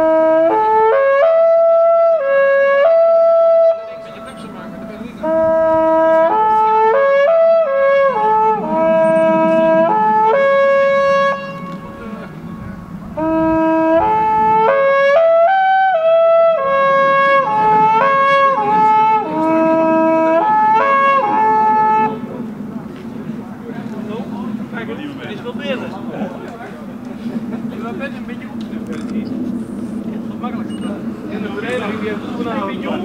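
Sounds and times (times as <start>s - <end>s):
long wooden horn playing: 0.0s - 23.4s.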